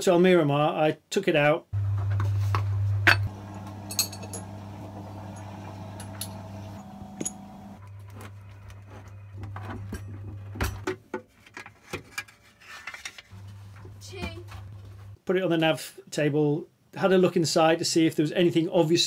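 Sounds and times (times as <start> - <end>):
low hum: 1.8 - 7.8.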